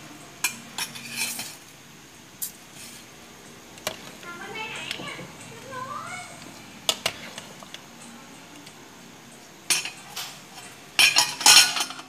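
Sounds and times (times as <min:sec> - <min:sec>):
metal ladle clinking on a pot: 0:11.0 - 0:12.0.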